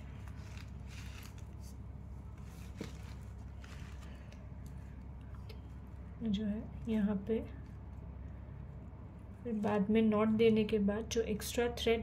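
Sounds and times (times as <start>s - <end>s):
thread rustling and ticking: 0.0s - 6.0s
low background hum: 0.0s - 12.0s.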